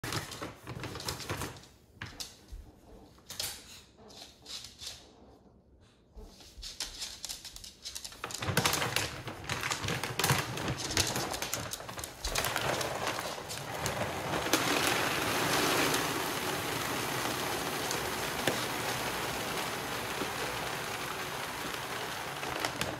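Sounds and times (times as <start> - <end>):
bag crackling and rustling: 8.4 - 22.9
dry kibble pouring into bin: 8.4 - 22.9.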